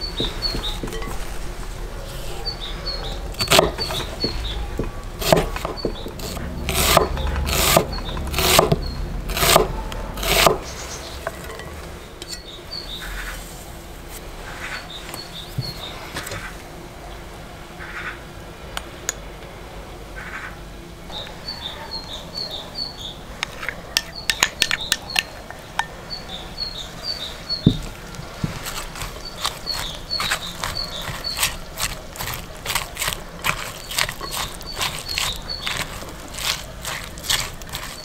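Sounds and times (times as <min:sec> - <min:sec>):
cabbage crunching in a bowl: 0:00.0 - 0:10.9, 0:27.7 - 0:38.0
bird chirping: 0:00.0 - 0:13.4, 0:14.6 - 0:16.1, 0:21.1 - 0:38.0
dull thump: 0:27.6 - 0:28.6.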